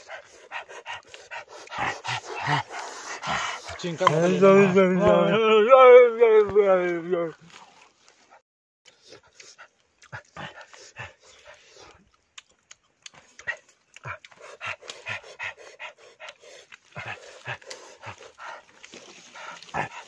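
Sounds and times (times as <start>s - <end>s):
wet chewing and lip-smacking: 0.0s - 4.2s, 8.9s - 20.0s.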